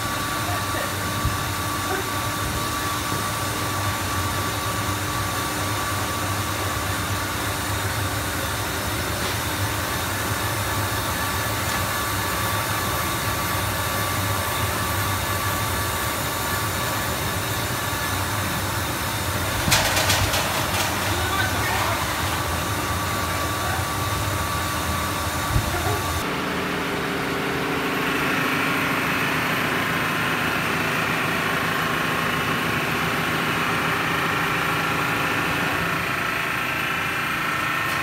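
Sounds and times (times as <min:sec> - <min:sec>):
factory machinery hum: 0:00.0 - 0:38.0
rattling clatter: 0:19.4 - 0:22.6.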